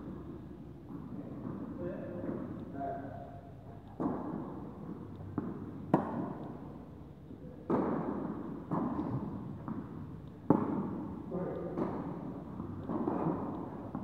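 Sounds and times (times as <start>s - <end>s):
tennis ball bouncing on court: 0.0s - 2.8s, 3.9s - 6.8s, 7.6s - 14.0s
tennis ball struck by rackets: 4.0s - 6.7s, 7.6s - 14.0s.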